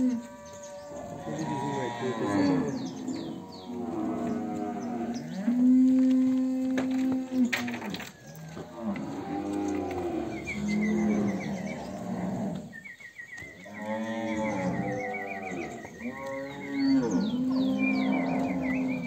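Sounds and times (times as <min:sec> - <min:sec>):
cattle mooing: 0:00.0 - 0:12.7, 0:13.6 - 0:19.0.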